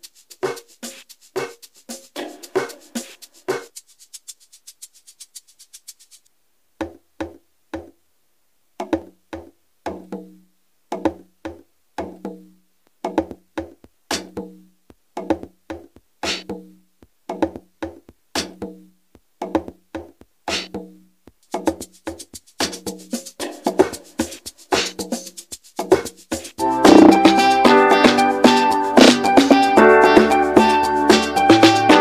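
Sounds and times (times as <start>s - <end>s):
conga hits: 0.0s - 6.2s, 6.8s - 8.0s, 8.8s - 32.0s
snare hit: 26.8s - 32.0s.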